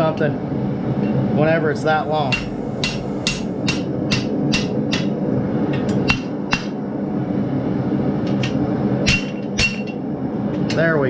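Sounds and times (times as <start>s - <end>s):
steady low hum: 0.0s - 11.0s
hammer striking steel on anvil: 2.2s - 5.2s, 5.8s - 6.8s, 9.0s - 10.0s.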